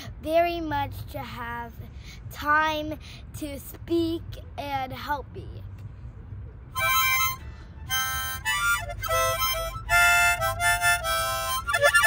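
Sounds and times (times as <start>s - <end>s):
child playing harmonica: 6.8s - 12.0s.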